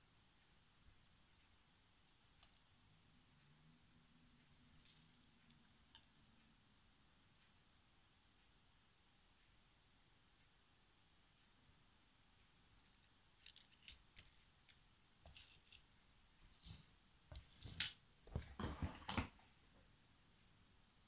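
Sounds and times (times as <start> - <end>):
rustling: 12.3 - 19.5
toy cars clicking and clattering: 12.8 - 15.9.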